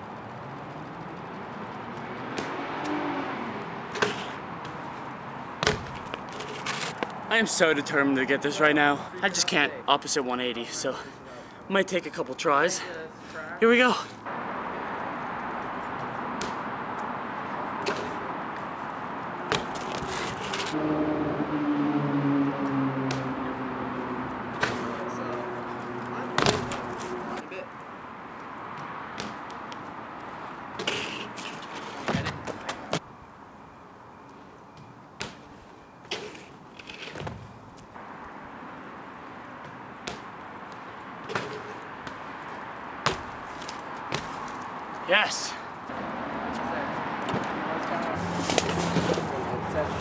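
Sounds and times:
bike rattling: 0.0s - 2.5s, 5.6s - 7.1s
bike knocks and clicks: 5.6s - 6.6s
bike landing clack: 26.4s - 27.0s, 43.0s - 44.4s.

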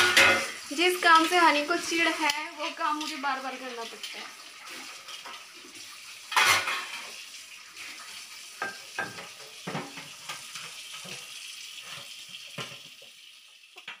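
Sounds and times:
dishes and utensils clinking: 0.0s - 0.6s, 6.3s - 7.2s, 8.6s - 12.9s
tap running into sink: 8.6s - 11.3s, 11.9s - 13.1s.

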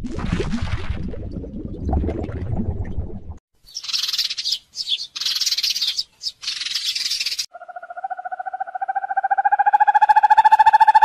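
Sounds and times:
sparrow chirping: 3.6s - 11.0s
owl trilling: 3.7s - 11.0s.

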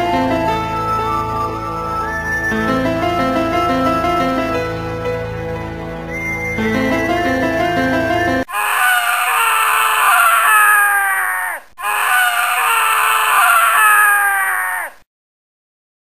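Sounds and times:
long loud scream: 8.5s - 15.0s.

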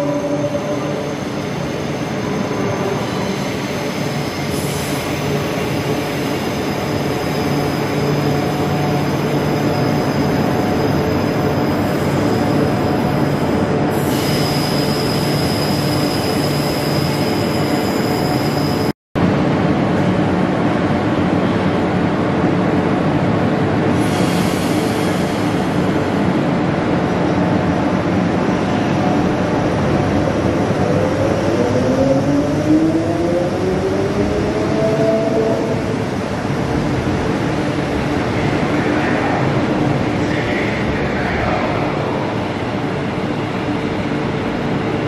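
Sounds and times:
high wheel squeal on rails: 0.0s - 18.9s.

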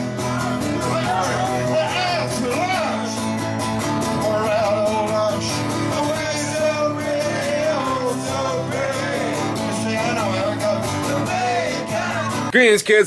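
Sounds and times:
acoustic guitar strumming: 0.0s - 12.5s
man singing: 0.0s - 12.5s.

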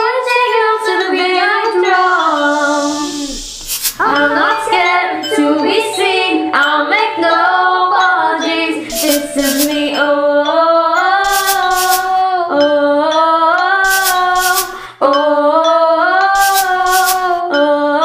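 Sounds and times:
woman singing long notes: 1.0s - 3.4s
backing track with hissy beats: 2.2s - 4.6s, 8.9s - 9.9s, 11.3s - 12.2s, 13.8s - 14.8s, 16.3s - 17.4s.

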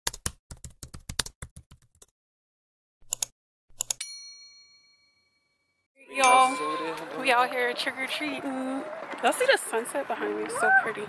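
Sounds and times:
notification bell ding: 6.1s - 7.0s.

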